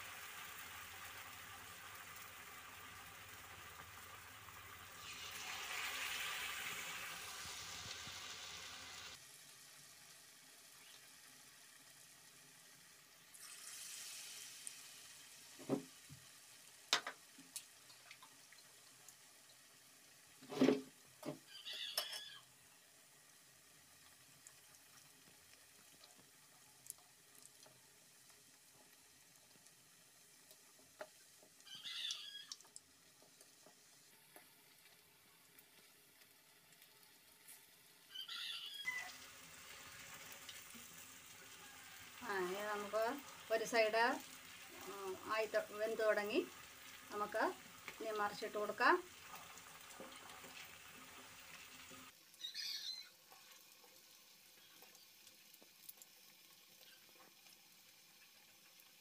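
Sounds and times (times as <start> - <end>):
batter balls deep-frying sizzle: 0.0 - 59.0
faint crackles: 23.9 - 38.2, 49.1 - 59.0.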